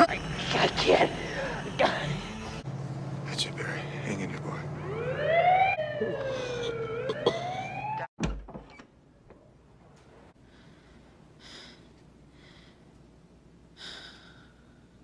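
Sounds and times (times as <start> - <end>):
ambulance siren wailing: 4.4 - 8.1.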